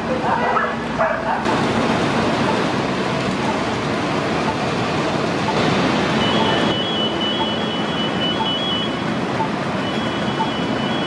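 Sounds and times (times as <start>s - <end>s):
street noise: 0.0s - 11.0s
high electronic beeping: 5.4s - 11.0s.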